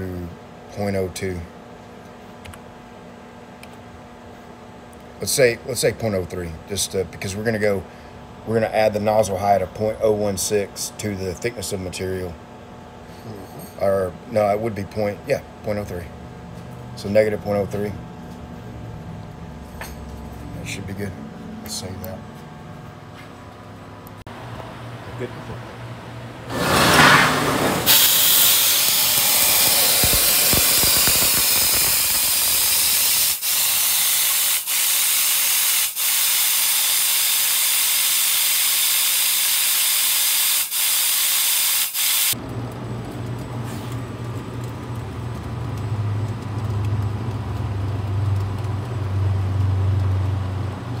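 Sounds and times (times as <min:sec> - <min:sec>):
laser cutter gas hissing: 0:26.5 - 0:42.4.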